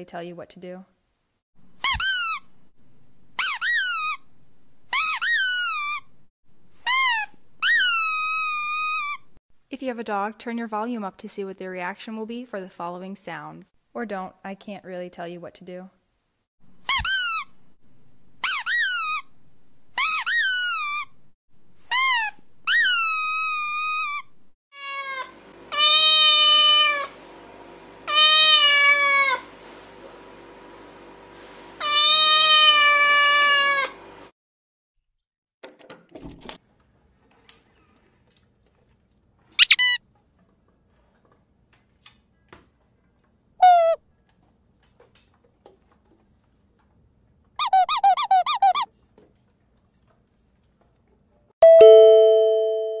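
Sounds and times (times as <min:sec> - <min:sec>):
high-pitched squeaks and chirps: 0:01.8 - 0:02.5, 0:03.4 - 0:04.3, 0:04.9 - 0:06.1, 0:06.8 - 0:09.3, 0:16.8 - 0:17.5, 0:18.4 - 0:19.3, 0:20.0 - 0:21.2, 0:21.8 - 0:24.4, 0:39.6 - 0:40.0, 0:43.6 - 0:44.0, 0:47.6 - 0:48.9
two steady ringing tones: 0:51.6 - 0:53.0.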